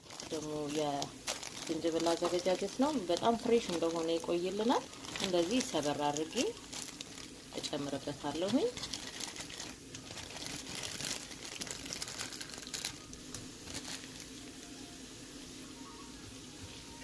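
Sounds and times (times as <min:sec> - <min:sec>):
plastic bag crinkling: 0:00.0 - 0:14.7
vegetables sizzling in oil: 0:00.0 - 0:17.0.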